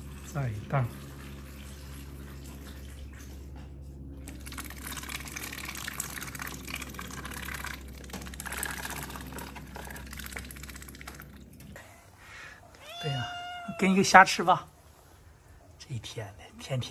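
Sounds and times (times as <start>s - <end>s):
ducks splashing in water: 4.3s - 11.4s.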